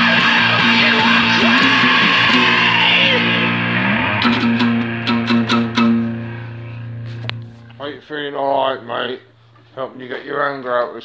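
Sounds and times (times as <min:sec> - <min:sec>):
acoustic guitar strumming: 0:00.0 - 0:07.9.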